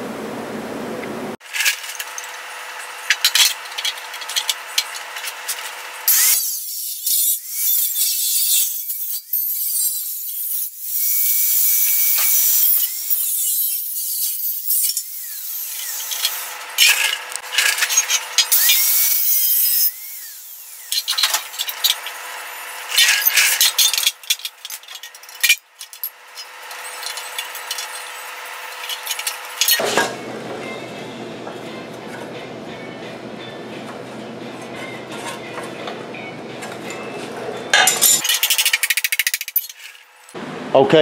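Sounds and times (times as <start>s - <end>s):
angle grinder cutting steel: 1.6s - 30.9s
grinder motor running: 14.5s - 31.2s.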